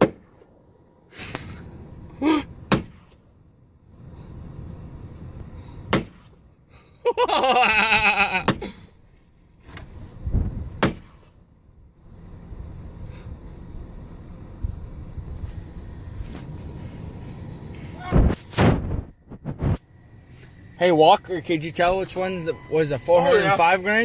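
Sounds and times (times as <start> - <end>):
short rising cry: 22.6 - 23.8
loud whooping yell: 22.9 - 23.9.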